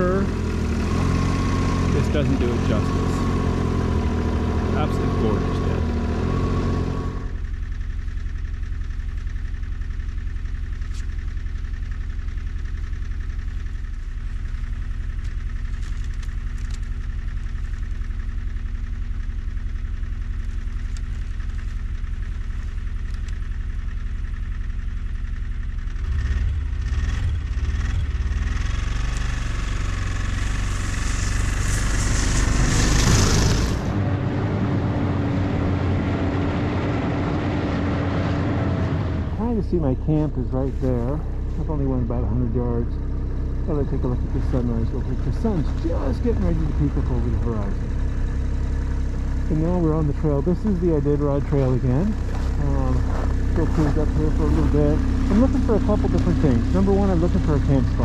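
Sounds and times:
snowmobile engine: 0.0 - 7.7, 25.8 - 58.0.

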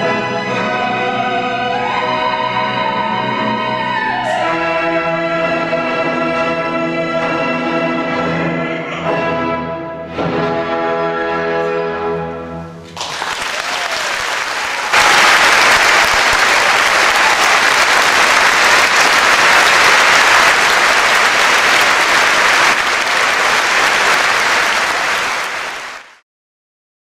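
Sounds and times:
audience applauding: 12.9 - 26.2.

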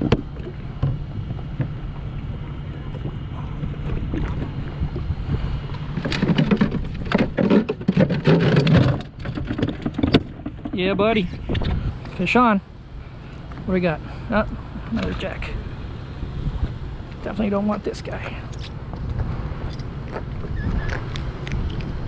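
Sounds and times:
water lapping at hull: 0.0 - 22.0
wind buffeting microphone: 0.0 - 22.0
quick knocks and clatter: 6.0 - 11.7.

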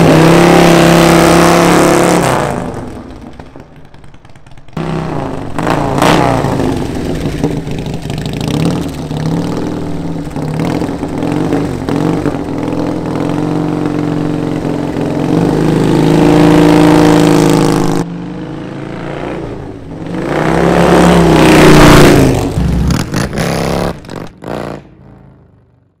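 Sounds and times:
motorcycle engine revving: 0.0 - 25.9.

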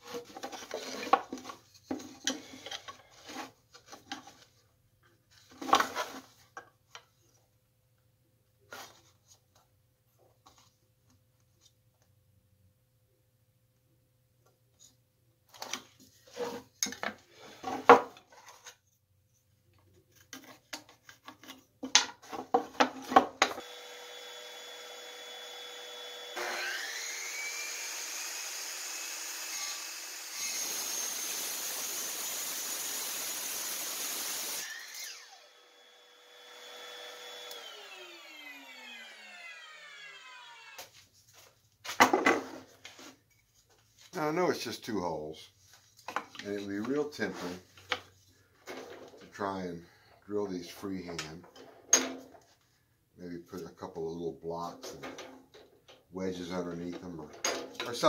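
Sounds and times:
wood and tools clattering: 0.0 - 7.1, 15.5 - 18.9, 20.1 - 23.6, 37.4 - 44.1, 45.7 - 49.4, 51.0 - 52.6, 54.7 - 56.1, 56.7 - 58.0
dust vacuum running: 23.6 - 40.8
miter saw cutting wood: 23.6 - 40.9.

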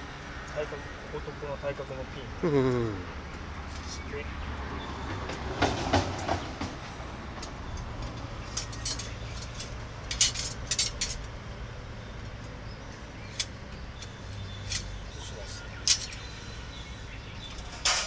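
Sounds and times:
metal rods clinking together: 8.5 - 11.3, 15.8 - 16.2, 17.4 - 18.0.

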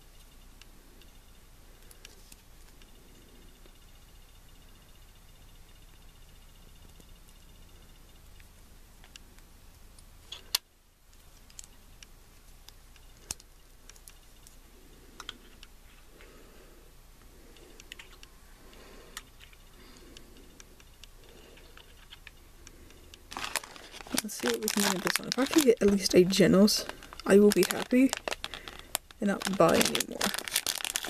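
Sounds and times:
faint handling rustle: 11.1 - 31.0.

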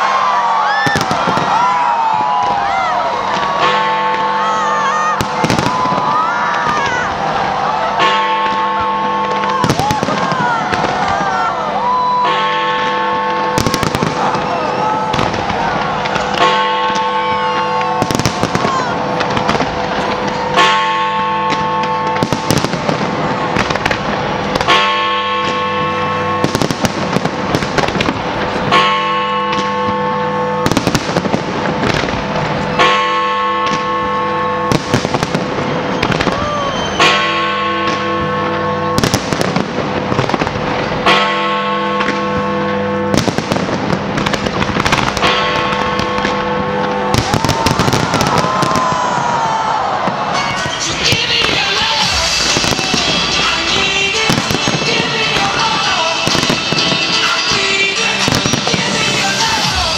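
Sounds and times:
fireworks bangs and crackles: 0.0 - 59.9
deep bell striking: 28.2 - 36.0, 37.0 - 47.7.

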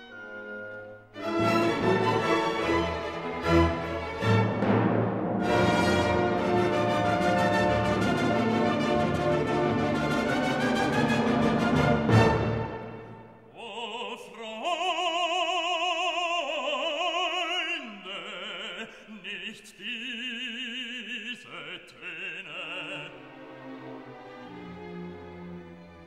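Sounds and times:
quiet orchestral backing: 0.0 - 13.6, 22.0 - 26.0
operatic voice singing: 13.5 - 23.5.

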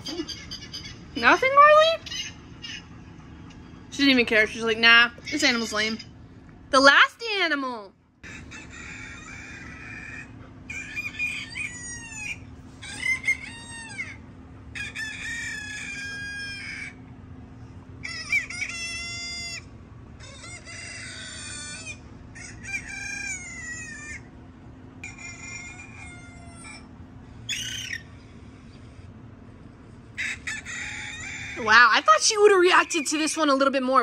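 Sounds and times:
faint low hum: 0.0 - 34.0
rooster crowing: 8.2 - 12.4, 13.0 - 17.0, 30.2 - 32.0.

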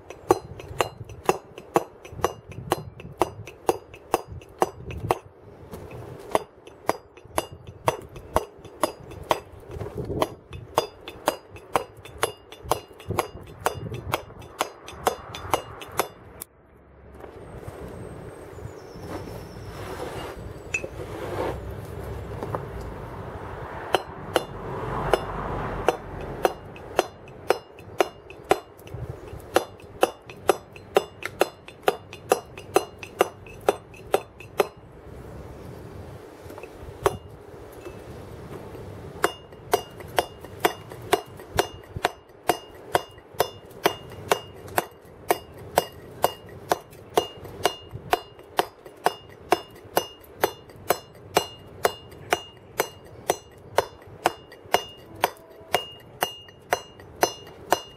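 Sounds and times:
mallet striking chisel into stone: 0.0 - 5.3, 6.3 - 16.3, 23.9 - 34.8, 39.2 - 57.9.

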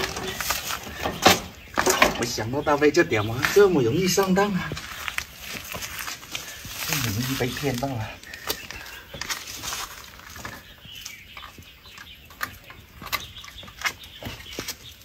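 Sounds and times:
tools clicking and knocking on engine: 0.0 - 2.5, 11.2 - 15.0.

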